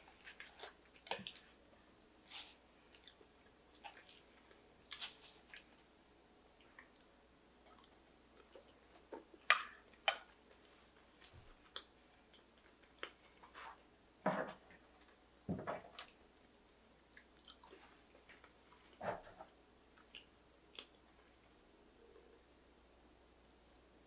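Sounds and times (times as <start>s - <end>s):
close-miked chewing: 0.0s - 1.6s, 2.2s - 5.9s, 6.6s - 13.6s, 16.0s - 19.0s
crackly clicks of pastry: 14.7s - 21.5s.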